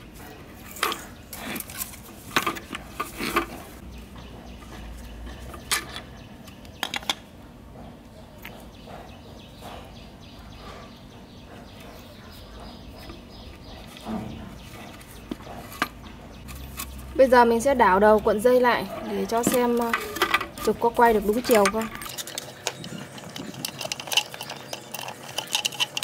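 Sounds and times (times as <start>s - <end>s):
metal parts clicking and knocking: 0.6s - 3.8s, 18.9s - 26.0s.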